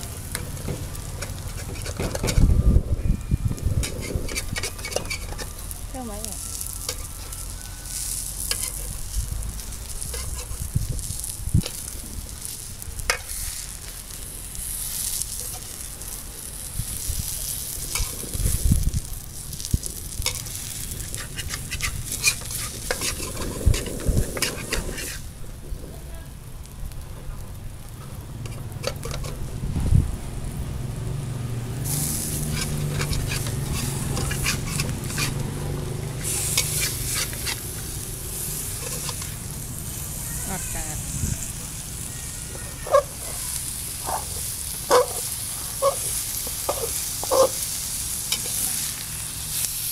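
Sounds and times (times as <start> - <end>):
omelette sizzling in pan: 0.0 - 2.5, 3.5 - 31.0, 31.7 - 49.9
metal spatula scraping pan: 0.3 - 2.5, 3.8 - 5.7, 6.8 - 7.3, 8.0 - 9.0, 10.0 - 10.7, 20.2 - 25.2, 28.4 - 29.4, 32.0 - 35.5, 36.2 - 39.4.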